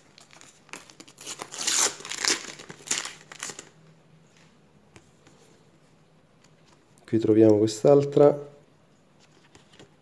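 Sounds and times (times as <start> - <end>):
packaging crinkling: 0.0 - 3.8.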